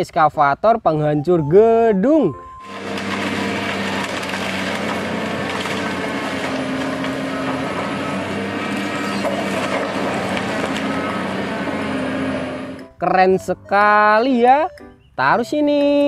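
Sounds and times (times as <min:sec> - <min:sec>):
timber splintering: 0:02.6 - 0:12.8
excavator engine running: 0:02.6 - 0:13.0
debris crashing and clattering: 0:02.7 - 0:12.8.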